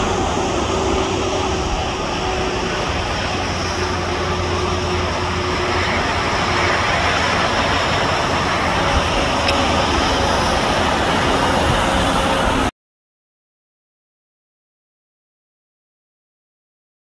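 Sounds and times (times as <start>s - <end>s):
distant jet engines rumbling: 0.0s - 12.7s.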